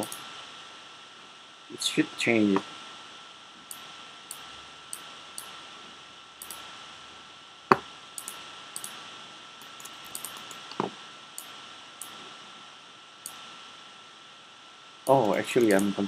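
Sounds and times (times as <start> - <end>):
faint steady tone: 0.0 - 16.0
mouse and keyboard clicks: 6.4 - 6.6, 8.2 - 9.0, 9.6 - 10.9.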